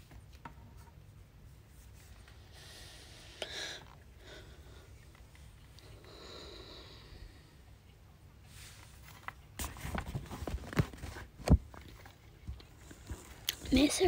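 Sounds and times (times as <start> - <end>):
book pages rustling: 8.6 - 13.5.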